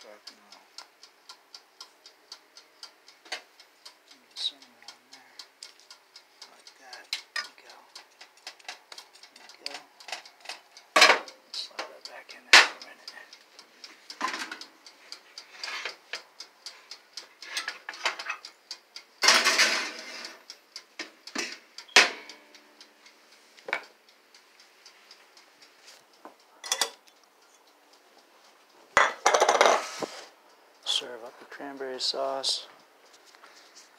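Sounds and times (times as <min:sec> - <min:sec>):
pan and utensils clicking: 0:14.2 - 0:14.6, 0:17.4 - 0:18.4, 0:19.2 - 0:20.4, 0:21.0 - 0:22.4, 0:26.6 - 0:27.0, 0:29.0 - 0:30.0.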